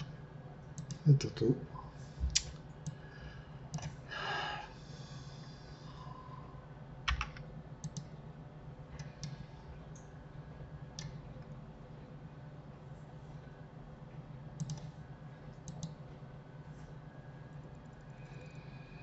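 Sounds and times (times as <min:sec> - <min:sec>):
steady low hum: 0:00.0 - 0:19.0
keyboard and mouse clicks: 0:07.1 - 0:08.1, 0:14.6 - 0:14.9, 0:15.6 - 0:16.0.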